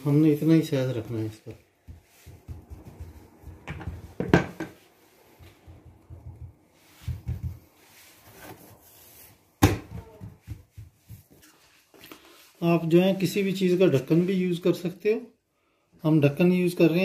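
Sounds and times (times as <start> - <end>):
hands patting dough on wood: 0.9 - 8.7, 9.5 - 12.1
knocks on wooden countertop: 1.9 - 4.8, 6.1 - 7.7.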